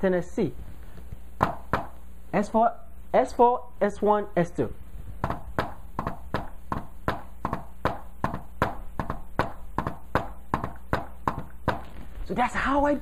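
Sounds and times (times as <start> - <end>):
hand tapping on a whiteboard: 1.4 - 2.0, 5.2 - 11.9.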